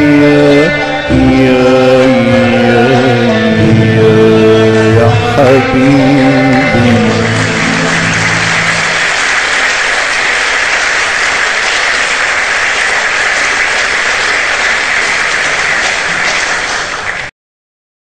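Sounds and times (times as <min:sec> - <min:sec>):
audience applauding: 0:06.1 - 0:17.3.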